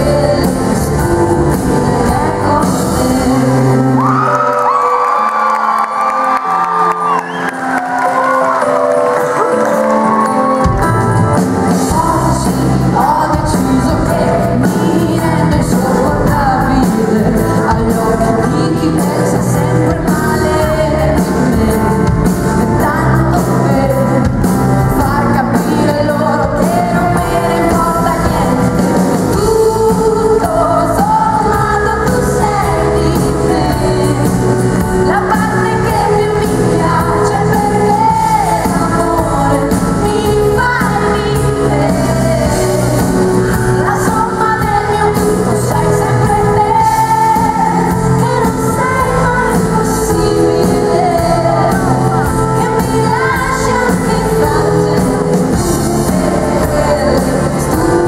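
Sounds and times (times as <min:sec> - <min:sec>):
woman singing with band: 0:00.0 - 0:05.5, 0:11.6 - 0:58.0.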